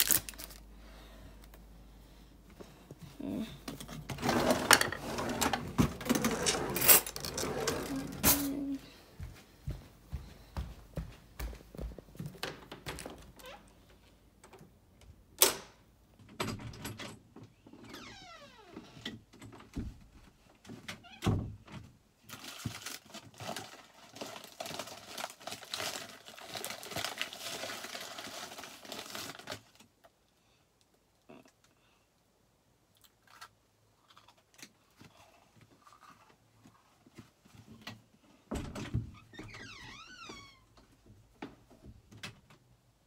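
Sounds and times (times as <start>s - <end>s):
plastic packaging crinkling: 0.0s - 0.7s, 22.3s - 29.9s.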